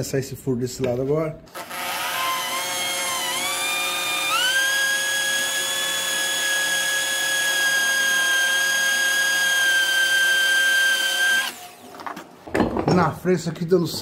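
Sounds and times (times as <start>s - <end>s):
electric drill whine: 1.5s - 12.0s.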